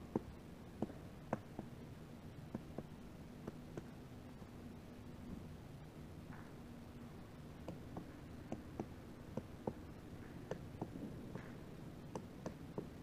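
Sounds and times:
woodpecker tapping on wood: 0.1s - 1.7s, 7.6s - 13.0s.

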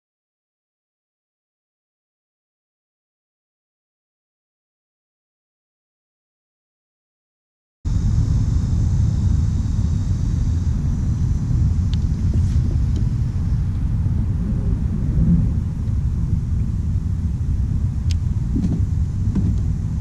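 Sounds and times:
wind buffeting microphone: 7.9s - 20.0s.

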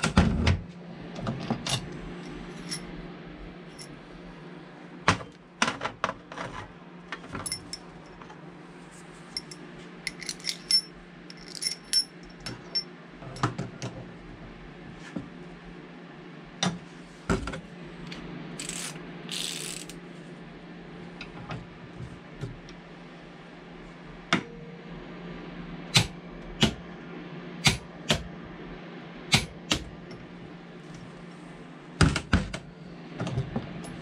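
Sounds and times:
steady low hum: 0.0s - 34.0s
metal tools clinking: 2.6s - 2.8s, 9.4s - 12.9s.

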